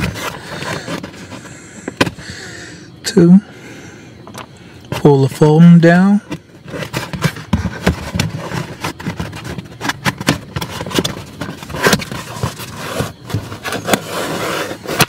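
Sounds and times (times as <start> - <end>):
foam scraping against plastic: 0.0 - 1.5, 6.3 - 15.0.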